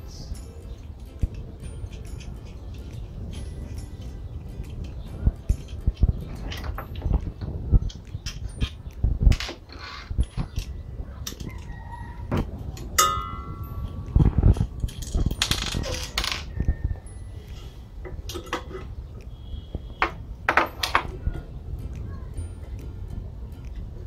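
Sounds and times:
metal clink: 12.8 - 14.0.

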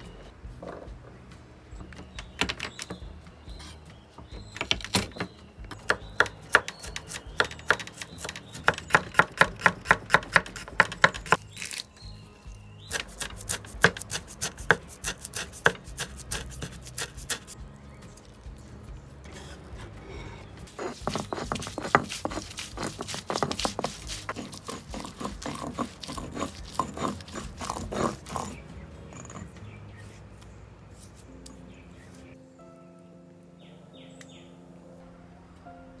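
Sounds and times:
knife chopping on wooden board: 4.5 - 11.8, 12.9 - 17.6, 20.7 - 28.6.

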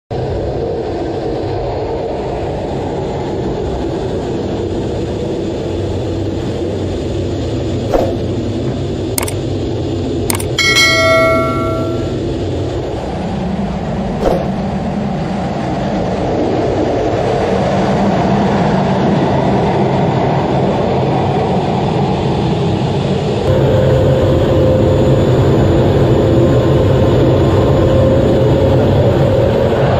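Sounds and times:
clicks: 9.2 - 9.4, 10.3 - 12.1
bell ding: 10.3 - 12.2.

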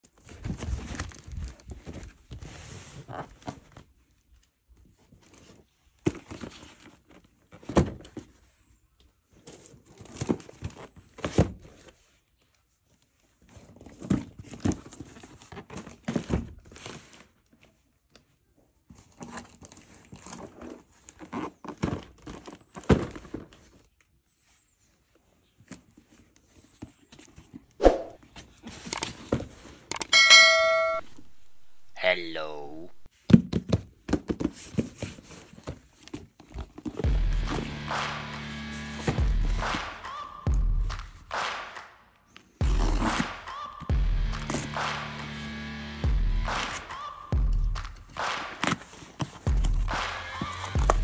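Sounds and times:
boxes knocking: 47.4 - 51.0.

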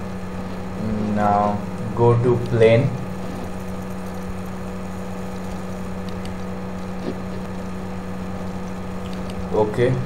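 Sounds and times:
low electrical hum: 0.0 - 10.0
faint clicks: 5.4 - 6.5.

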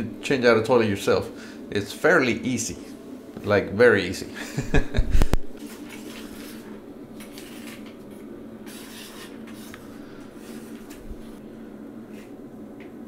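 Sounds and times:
steady low hum: 0.0 - 13.0
scraper scraping floor: 5.6 - 11.4.

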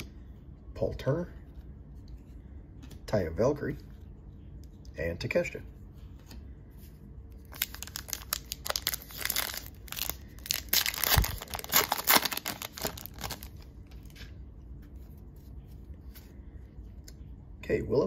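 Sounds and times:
foil wrapper crinkling and tearing: 7.4 - 13.7.

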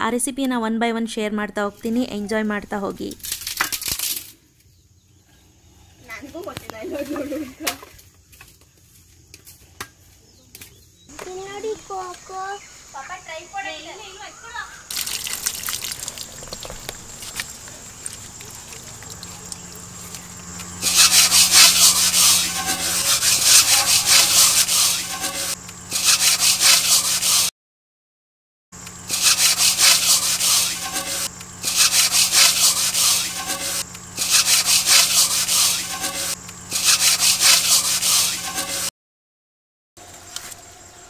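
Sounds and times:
pot being scoured by hand: 14.9 - 27.5, 29.1 - 38.9.

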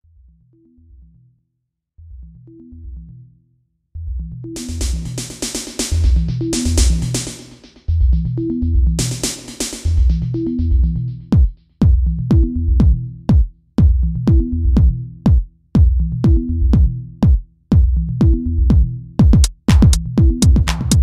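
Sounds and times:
repeating bass line: 4.0 - 17.2, 17.8 - 21.0
fast hi-hat ticks: 4.6 - 7.9, 9.0 - 10.4
drum machine beat: 4.6 - 21.0.

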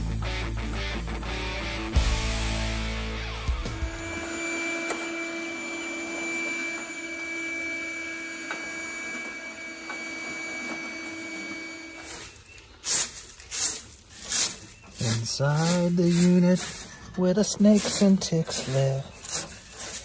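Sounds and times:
portable vacuum whine: 2.2 - 12.7.

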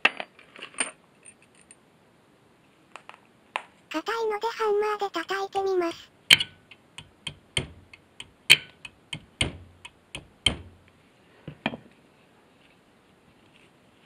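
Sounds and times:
hammer tapping metal key: 6.3 - 10.8.

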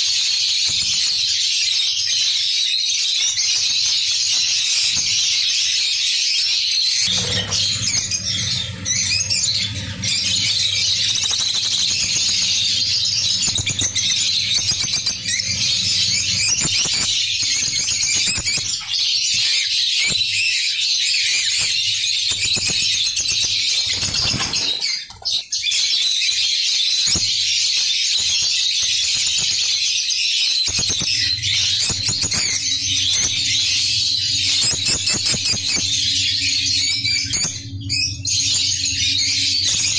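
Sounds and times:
low steady hum: 7.0 - 17.3, 31.0 - 39.9
lovebirds chattering and squawking: 7.0 - 20.5, 30.5 - 39.9.

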